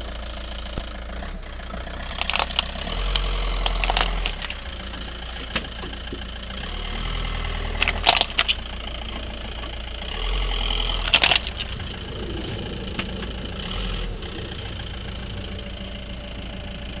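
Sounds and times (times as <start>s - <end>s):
phone cracking on paving stones: 2.1s - 4.8s, 7.7s - 8.7s, 11.0s - 11.8s
low rumble: 11.1s - 17.0s.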